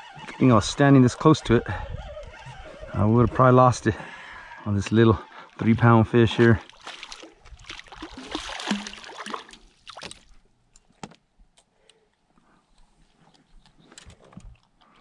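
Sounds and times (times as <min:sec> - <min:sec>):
fish thrashing and splashing: 0:06.3 - 0:10.4.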